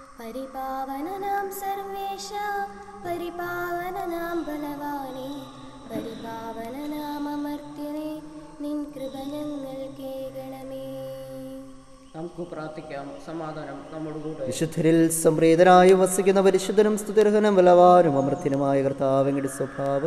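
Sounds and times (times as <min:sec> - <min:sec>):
high voice singing a hymn: 0:00.0 - 0:11.9
sustained accompanying tones: 0:00.0 - 0:20.0.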